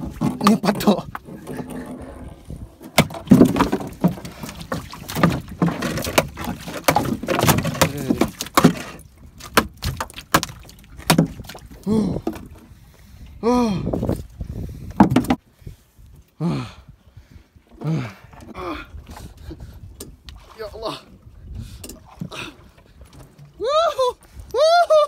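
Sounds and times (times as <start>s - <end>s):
fish thrashing on boat deck: 0.0s - 12.6s.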